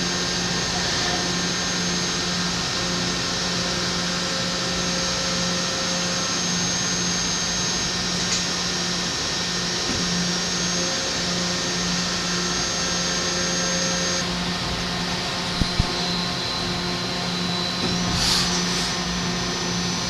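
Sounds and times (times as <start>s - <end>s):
low machine hum: 0.0s - 20.0s
high thin whine: 10.0s - 20.0s.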